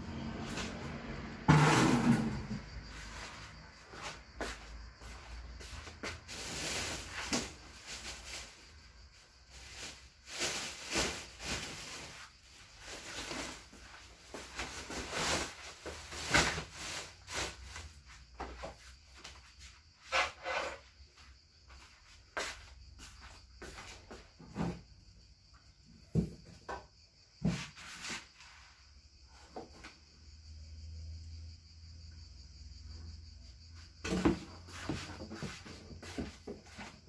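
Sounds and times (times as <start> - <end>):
objects handled and shifted: 1.5 - 8.6, 34.0 - 37.0.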